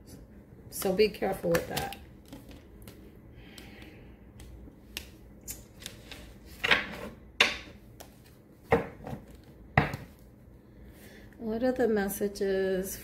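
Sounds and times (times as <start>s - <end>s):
cards slapping: 0.8s - 6.8s.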